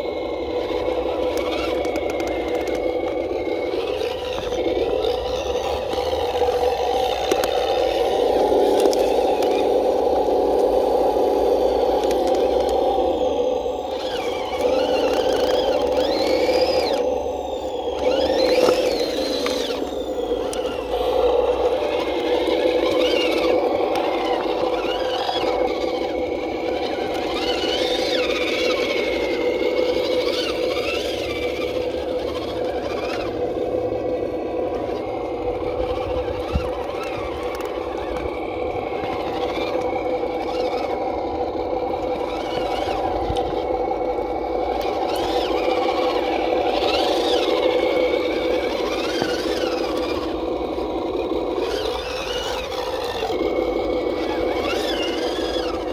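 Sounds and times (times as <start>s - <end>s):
high whine rising and falling: 0.0s - 55.9s
toy truck motor whining: 0.0s - 55.9s.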